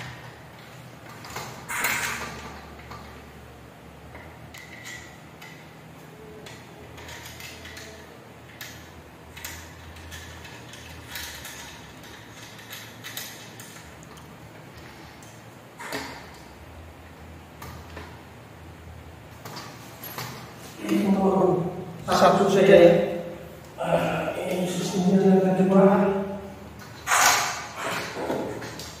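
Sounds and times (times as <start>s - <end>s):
metal slats clinking and scraping: 26.8s - 29.0s.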